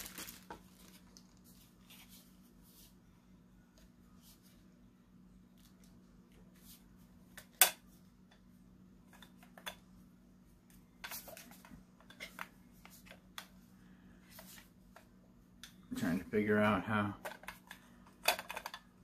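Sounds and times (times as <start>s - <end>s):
plastic wrapping rustling: 0.0s - 2.4s.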